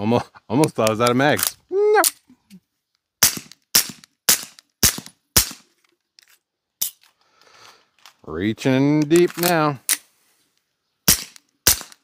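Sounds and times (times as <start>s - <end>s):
suppressed pistol shots: 3.2s - 5.6s, 11.1s - 12.0s.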